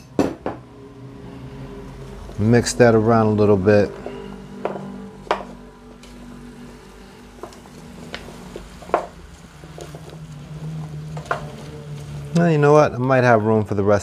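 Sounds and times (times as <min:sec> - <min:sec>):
steady low hum: 0:00.0 - 0:13.0
wooden spoon stirring vegetables: 0:03.8 - 0:12.4
spoon knocking on pan: 0:04.6 - 0:05.6.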